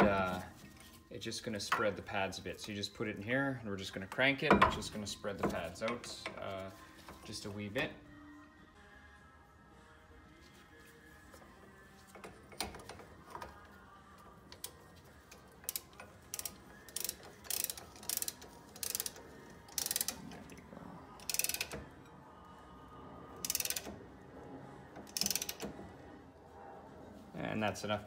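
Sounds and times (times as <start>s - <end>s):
ratcheting tool clicking: 14.5s - 20.6s, 21.2s - 21.9s, 23.4s - 24.0s, 25.0s - 25.7s.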